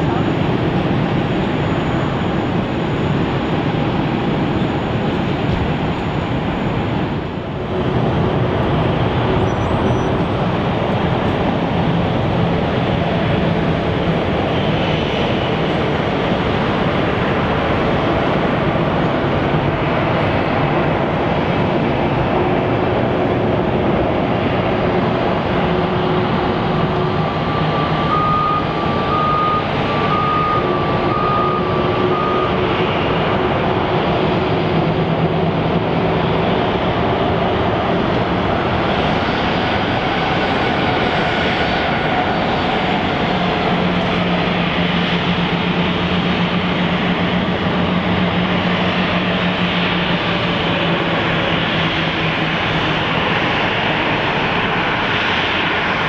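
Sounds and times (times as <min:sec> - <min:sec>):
aircraft engines running: 0:00.0 - 0:56.0
short beeps: 0:28.0 - 0:32.5.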